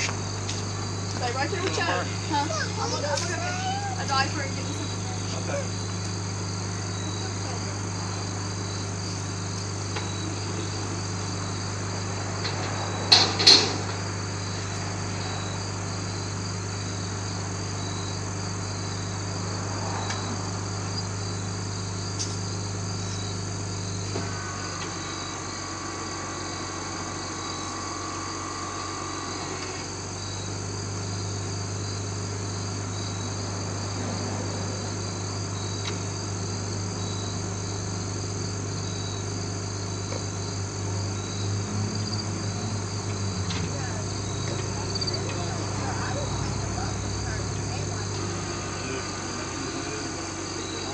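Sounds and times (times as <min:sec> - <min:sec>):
crickets chirping: 0:00.0 - 0:50.9.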